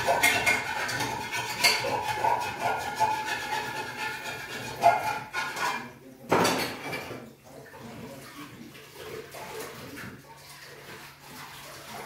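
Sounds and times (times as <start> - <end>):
water running from tap: 0.0 - 5.6, 6.8 - 12.0
pan scraping and clinking: 0.0 - 7.3.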